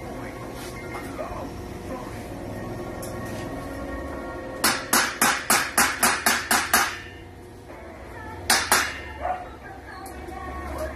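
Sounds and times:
hammer striking metal fence: 4.6s - 7.2s, 8.5s - 9.1s.

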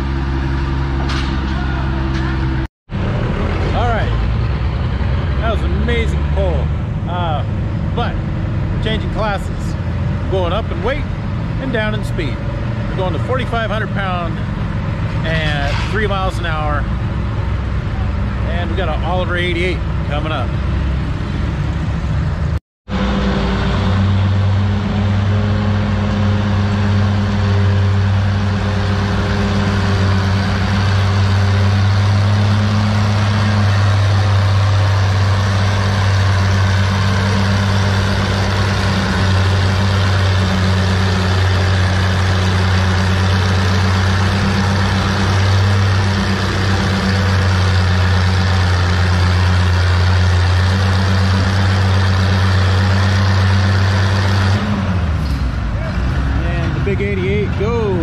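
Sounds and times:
tractor engine running under load: 0.0s - 15.2s, 15.9s - 58.0s.

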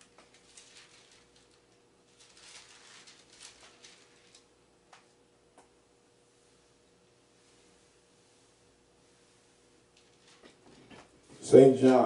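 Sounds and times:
pages turning: 0.0s - 5.1s, 10.0s - 11.0s
steady low hum: 0.0s - 12.0s.

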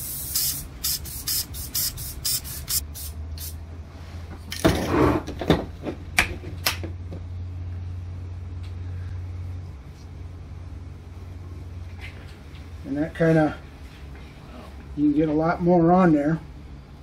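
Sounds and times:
aerosol spray can puffs: 0.0s - 3.6s
low room hum: 0.0s - 17.0s.

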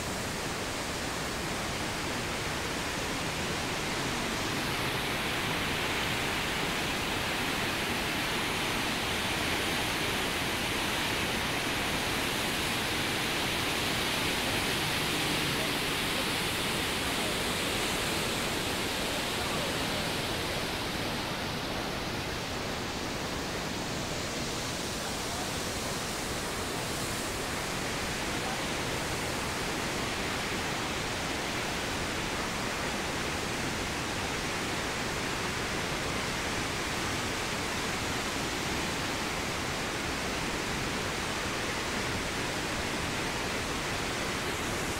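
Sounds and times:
waterfall and rushing river: 0.0s - 44.9s.

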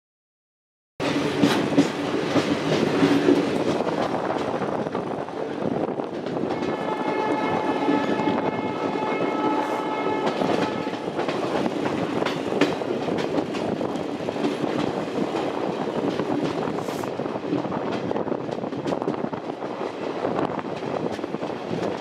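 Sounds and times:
train coach rumbling on rails: 1.0s - 22.0s
train horn blast: 6.5s - 11.1s
wheels clicking over rail joints: 9.9s - 22.0s.

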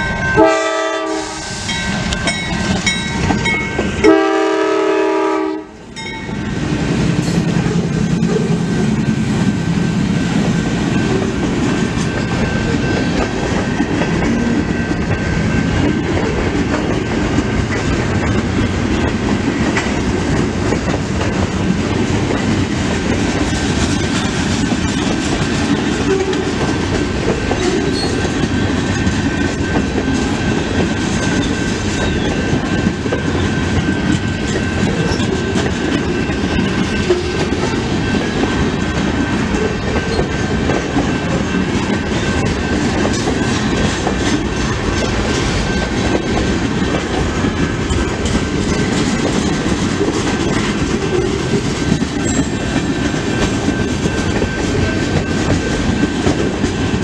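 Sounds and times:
crossing bell ringing: 0.0s - 9.6s, 10.4s - 16.7s, 27.6s - 56.1s
train wheels rumbling and clattering: 0.0s - 57.0s.

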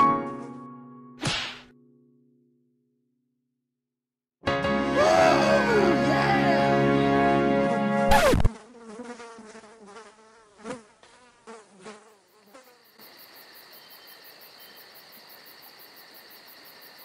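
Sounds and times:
music: 0.0s - 2.9s, 4.4s - 8.1s
housefly buzzing: 7.9s - 14.2s
crickets chirping: 12.2s - 17.0s.

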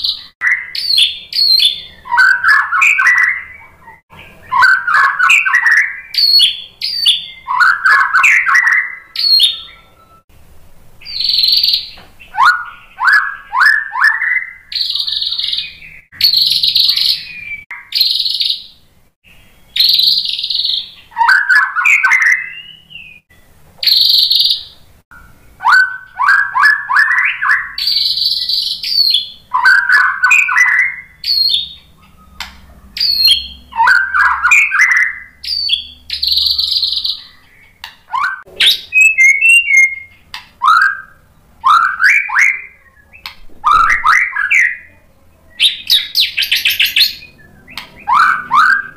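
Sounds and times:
songbird whistling and clicking: 11.0s - 18.7s, 19.8s - 23.2s, 23.8s - 44.8s, 45.6s - 48.9s.

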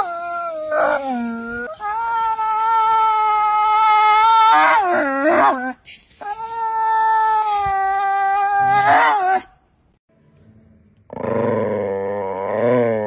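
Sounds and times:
dog whining: 0.0s - 2.4s, 4.0s - 9.5s.

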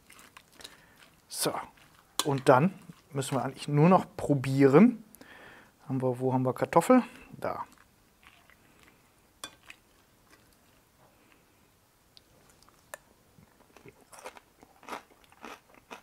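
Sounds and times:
person chewing crunchy food: 0.0s - 3.7s, 7.7s - 10.8s, 12.4s - 16.0s.

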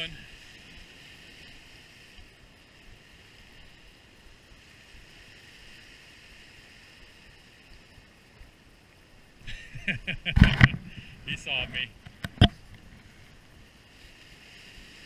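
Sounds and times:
small waves breaking over rocks: 0.0s - 9.5s, 10.2s - 15.0s
low wind rumble: 0.0s - 15.0s.

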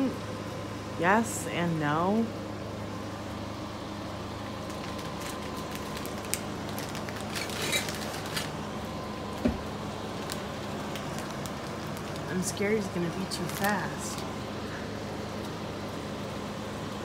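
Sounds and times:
electric fan humming: 0.0s - 17.0s.

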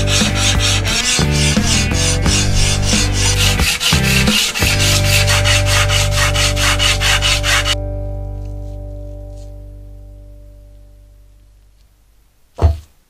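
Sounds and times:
file rasping on steel: 0.0s - 7.8s
music chord: 0.0s - 11.7s.

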